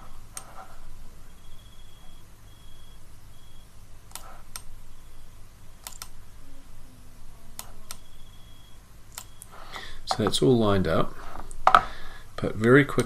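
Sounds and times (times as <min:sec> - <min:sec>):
faint steady hum: 0:00.0 - 0:13.0
computer mouse and keyboard clicks: 0:04.1 - 0:04.7, 0:05.8 - 0:06.2.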